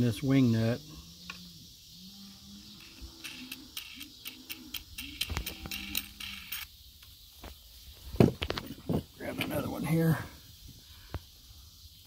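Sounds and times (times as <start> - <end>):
metallic clicks of wing nut spinning: 2.8 - 6.7.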